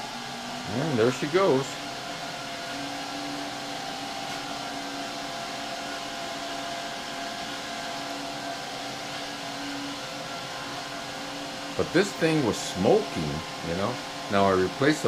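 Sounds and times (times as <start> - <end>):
cooling fans whooshing: 0.0 - 15.0
treadmill motor and belt hum: 0.0 - 15.0.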